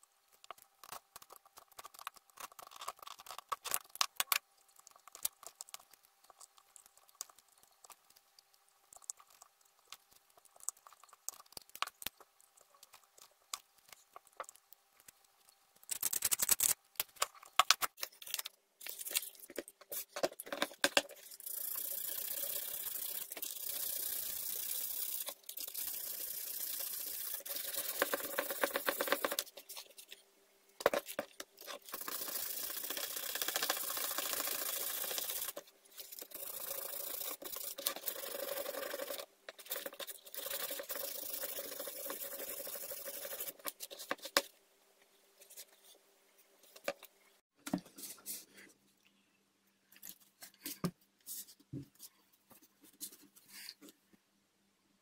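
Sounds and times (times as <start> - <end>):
sandpaper rubbing: 21.8 - 29.4, 31.8 - 44.2.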